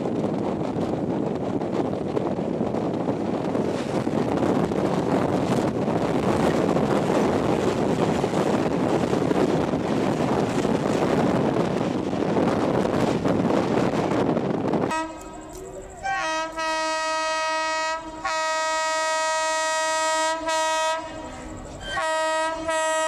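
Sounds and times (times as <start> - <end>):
wind rush: 0.0 - 18.3
passing train: 0.0 - 23.0
train wheels on rails: 0.0 - 23.0.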